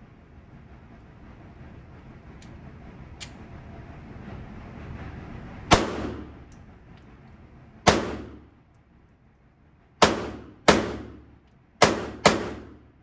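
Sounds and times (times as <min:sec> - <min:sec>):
pistol shots echoing: 0:07.9 - 0:08.4, 0:10.0 - 0:11.2, 0:11.8 - 0:12.8.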